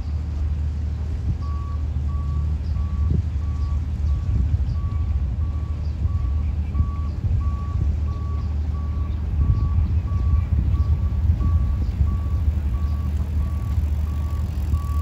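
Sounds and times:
low continuous rumble: 0.0s - 15.0s
reversing alarm beeping: 4.8s - 15.0s.

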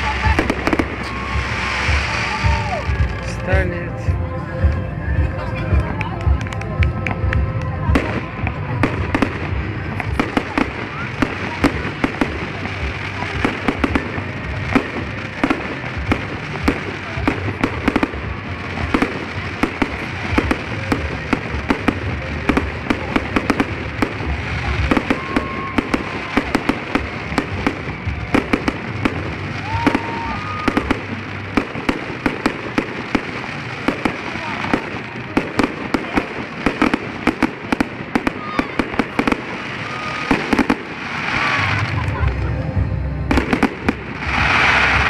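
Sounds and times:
fireworks bangs and crackles: 0.0s - 45.0s
low rumble: 41.5s - 45.0s.

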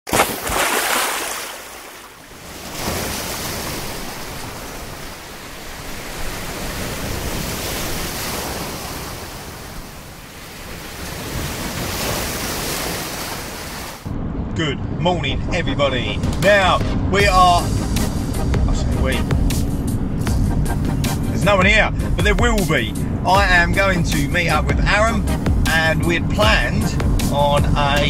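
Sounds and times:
sea waves breaking: 0.1s - 14.1s.

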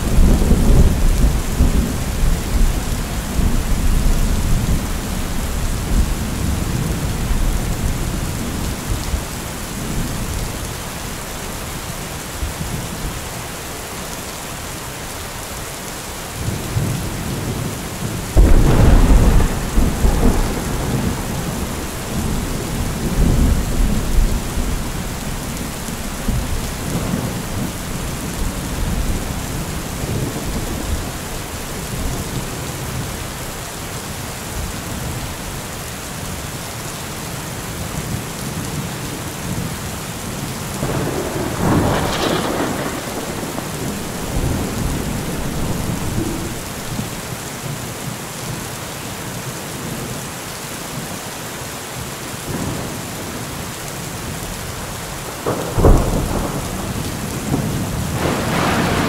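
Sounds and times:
thunder rumbling: 0.0s - 10.6s, 16.4s - 33.2s, 40.7s - 47.2s, 55.3s - 59.0s
steady rain: 0.0s - 59.0s.

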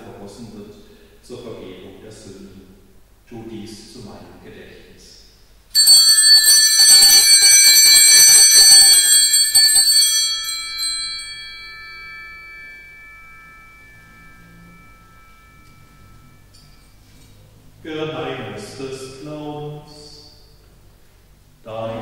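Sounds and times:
altar bells ringing: 5.8s - 17.2s.

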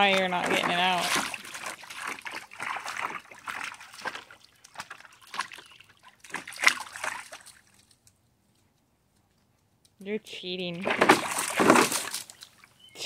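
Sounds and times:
dog splashing in water: 0.0s - 7.9s, 10.8s - 12.7s.

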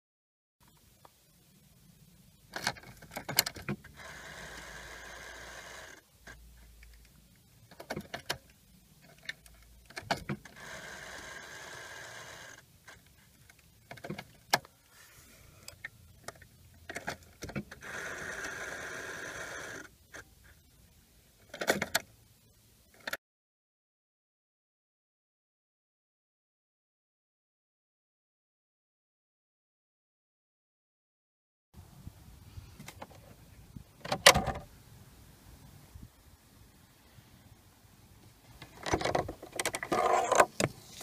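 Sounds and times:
electric whirr: 4.0s - 6.0s, 10.5s - 12.6s, 17.8s - 19.9s.

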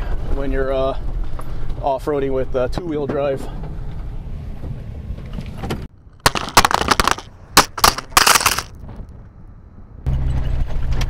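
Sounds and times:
sand and gravel crunching: 6.2s - 8.7s.

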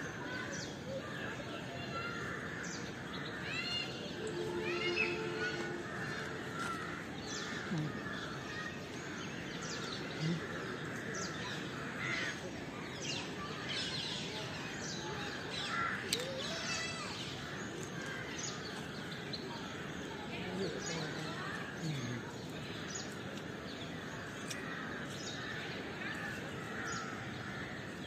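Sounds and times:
birds chirping: 0.0s - 28.0s
outdoor background noise: 0.0s - 28.0s.

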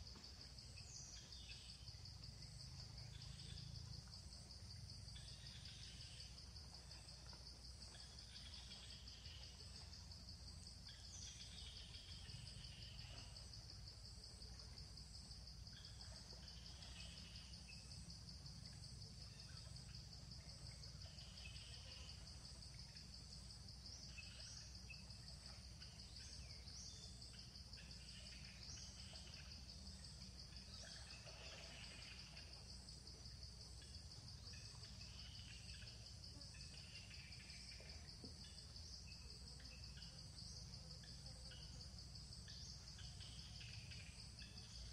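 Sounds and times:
insect chirring: 0.0s - 44.9s.

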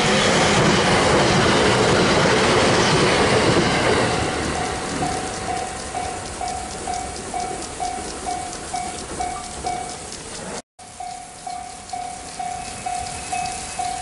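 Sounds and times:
train wheels clattering on rails: 0.0s - 14.0s
crossing warning bell dinging: 3.2s - 14.0s.

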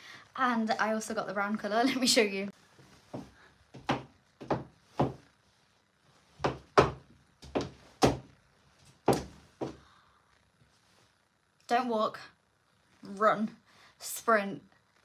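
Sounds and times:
heavy footsteps on hard floor: 2.8s - 5.3s, 6.3s - 9.8s.

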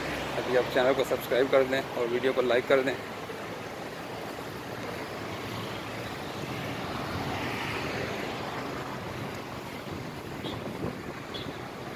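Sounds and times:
city road traffic: 0.0s - 11.9s.

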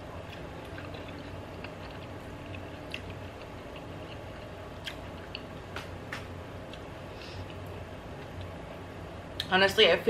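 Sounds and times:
low steady hum: 0.0s - 10.0s
soft chewing: 0.2s - 5.6s.

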